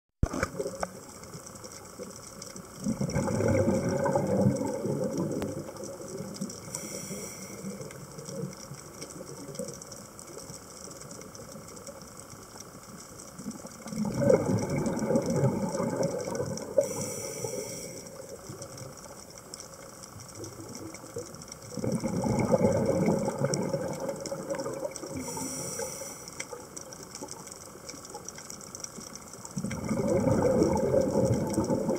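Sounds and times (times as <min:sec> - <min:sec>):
bubbling exhalation underwater: 0:02.8 - 0:06.4, 0:13.9 - 0:16.9, 0:21.7 - 0:25.6, 0:29.6 - 0:31.9
regulator inhale hiss: 0:06.6 - 0:08.2, 0:16.7 - 0:18.5, 0:25.1 - 0:26.7.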